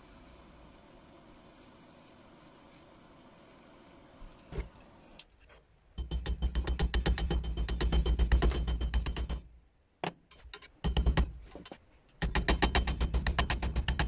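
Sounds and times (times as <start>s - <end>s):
rapid knocking on metal: 6.0s - 9.5s, 10.8s - 11.4s, 12.2s - 14.0s.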